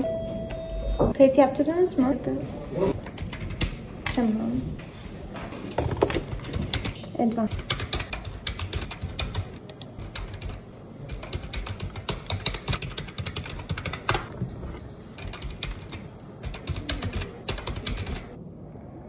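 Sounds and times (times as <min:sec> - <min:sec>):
typing on computer keyboard: 0:05.8 - 0:14.3, 0:15.2 - 0:18.4.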